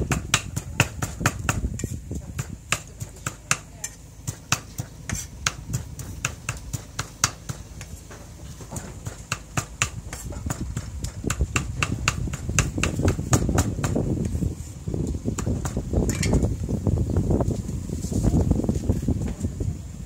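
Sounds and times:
cleaver chopping on wooden board: 0.0s - 7.9s, 8.6s - 14.0s.

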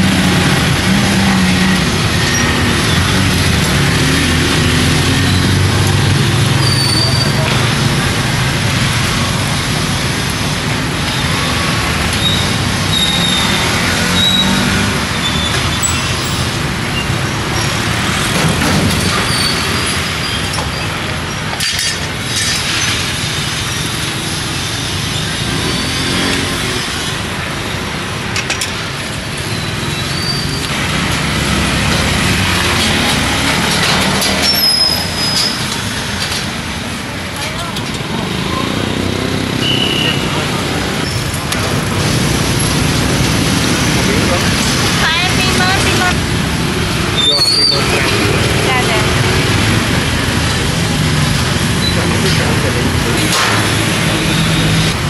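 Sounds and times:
street traffic noise: 0.0s - 55.0s
brief high squeals: 47.2s - 47.9s.

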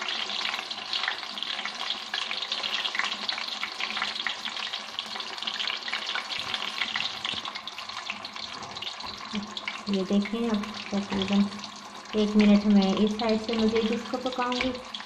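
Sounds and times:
fish deep-frying in oil: 0.0s - 15.0s.

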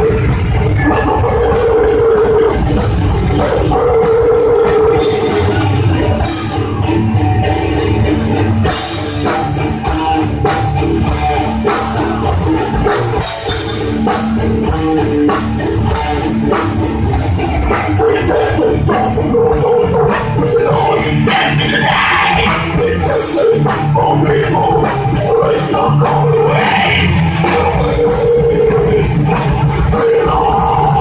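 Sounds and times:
drum kit with cymbal crashes: 0.0s - 6.8s
bass guitar: 0.0s - 31.0s
distorted electric guitars: 0.0s - 31.0s.

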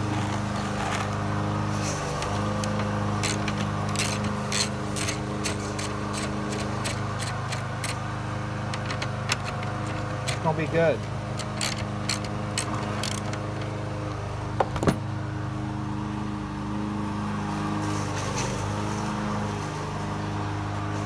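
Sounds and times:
socket ratchet clicking: 2.2s - 8.0s, 8.7s - 13.7s.

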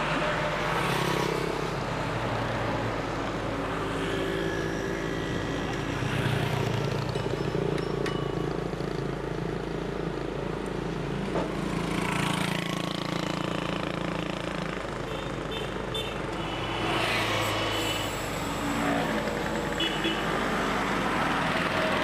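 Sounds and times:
road traffic: 0.0s - 22.0s.

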